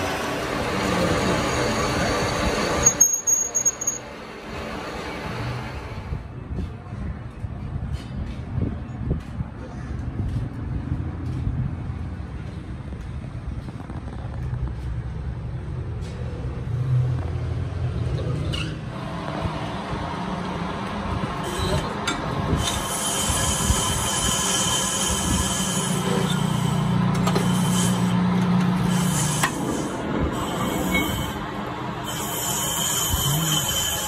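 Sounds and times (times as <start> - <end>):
metallic squeal: 1.2 - 4.1, 22.6 - 28.2, 28.8 - 34.0.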